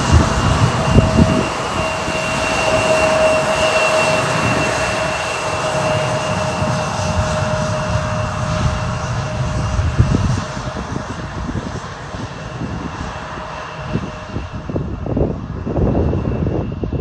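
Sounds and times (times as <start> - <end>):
jet engines whining at taxi power: 0.0 - 17.0.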